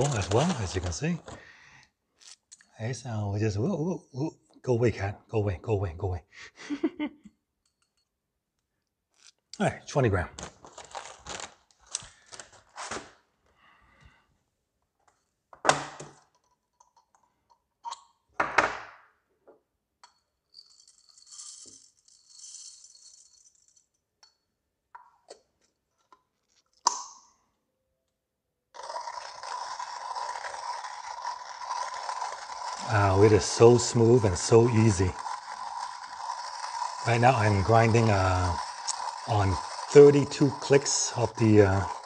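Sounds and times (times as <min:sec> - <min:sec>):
coffee beans rattling: 0:00.0 - 0:02.4, 0:10.4 - 0:12.6, 0:20.5 - 0:23.9, 0:28.8 - 0:42.0
hand grinder grinding beans: 0:00.0 - 0:02.7, 0:09.1 - 0:13.0, 0:20.6 - 0:23.8, 0:28.7 - 0:42.0.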